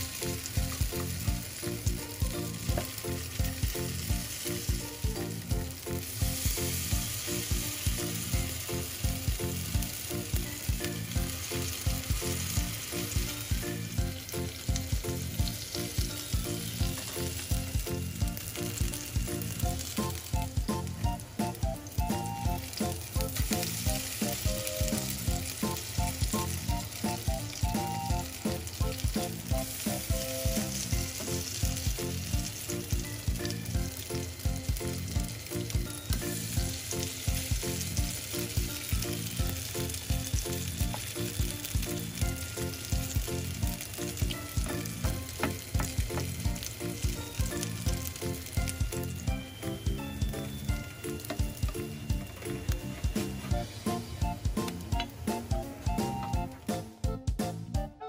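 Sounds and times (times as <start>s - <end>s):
background music with steady beat: 0.0s - 58.0s
patties sizzling in oil: 0.0s - 58.0s.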